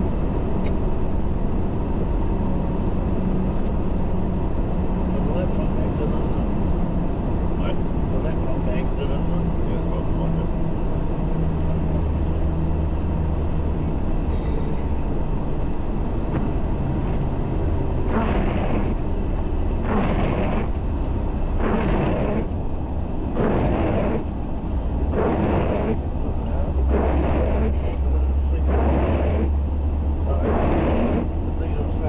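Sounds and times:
diesel engine droning: 0:00.0 - 0:32.0
rushing noise: 0:16.0 - 0:20.8, 0:21.4 - 0:32.0.

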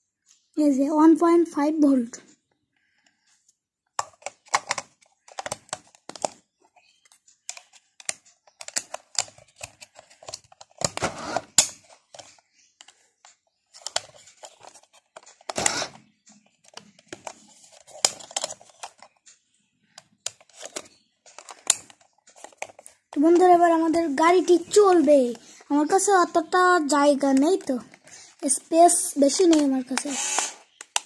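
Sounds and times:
plastic clicks and taps: 0:03.9 - 0:25.6, 0:29.2 - 0:31.0.

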